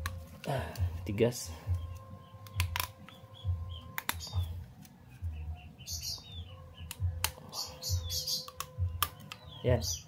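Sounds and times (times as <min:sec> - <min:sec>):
small birds chirping: 0:00.7 - 0:10.0
plastic parts clicking: 0:02.0 - 0:03.2.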